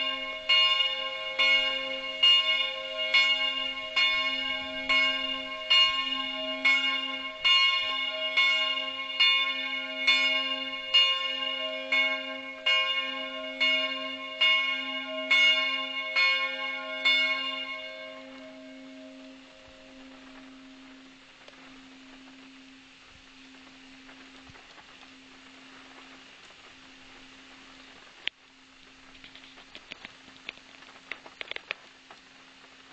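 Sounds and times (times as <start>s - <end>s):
bell humming: 0.0s - 26.3s
church bell ringing: 0.0s - 26.3s.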